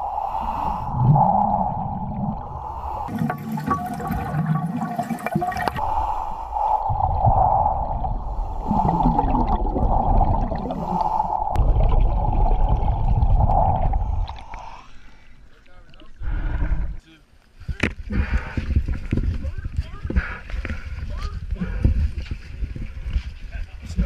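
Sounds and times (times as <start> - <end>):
bubbles gurgling underwater: 1.0 - 5.8, 6.9 - 14.6.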